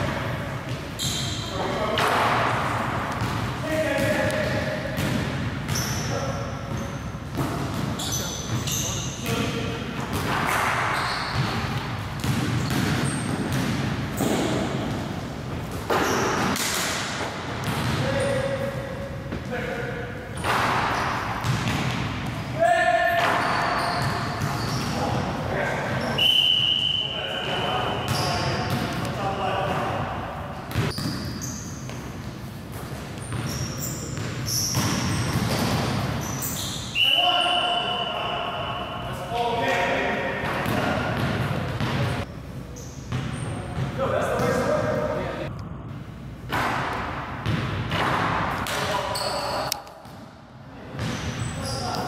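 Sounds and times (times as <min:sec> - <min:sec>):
sneaker squeaks: 0:00.6 - 0:02.1, 0:02.7 - 0:15.0, 0:15.6 - 0:16.7, 0:20.3 - 0:29.8, 0:30.7 - 0:39.3, 0:40.6 - 0:44.7, 0:47.4 - 0:50.2, 0:50.9 - 0:52.0
basketball bouncing: 0:04.0 - 0:06.0, 0:10.0 - 0:15.0, 0:15.9 - 0:18.0, 0:20.4 - 0:22.3, 0:30.7 - 0:31.3, 0:34.2 - 0:36.1.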